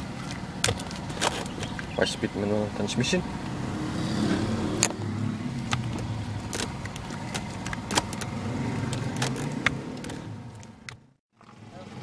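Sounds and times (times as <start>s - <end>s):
car engine idling: 0.0s - 3.7s, 4.7s - 12.0s
gear lever clicks and knocks: 5.6s - 11.0s.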